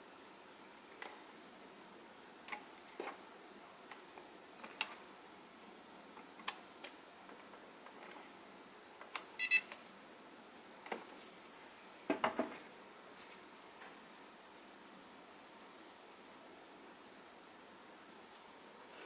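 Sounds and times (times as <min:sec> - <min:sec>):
short electronic beep: 0:09.4 - 0:09.7.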